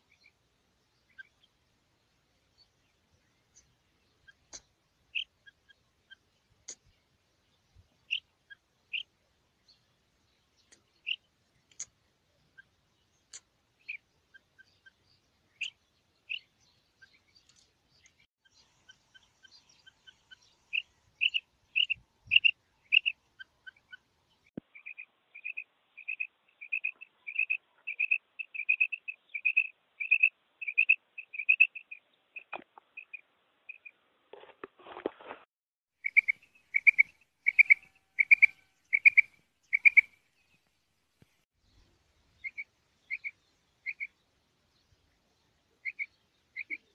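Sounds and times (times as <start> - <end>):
quail calling: 36.0 - 40.2, 45.8 - 46.9.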